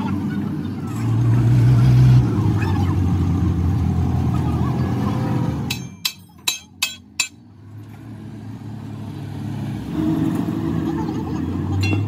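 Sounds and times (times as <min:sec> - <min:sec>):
hammer striking steel: 0:05.7 - 0:07.4.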